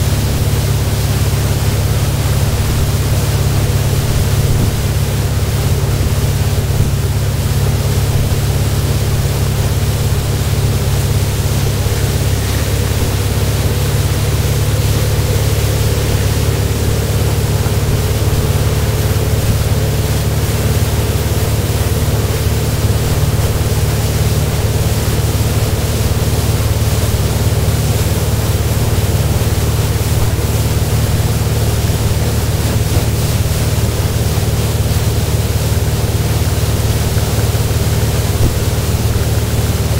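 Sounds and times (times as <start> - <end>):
wind on microphone: 0.0 - 34.3
boat engine running: 0.0 - 39.9
wake churning: 0.0 - 39.9.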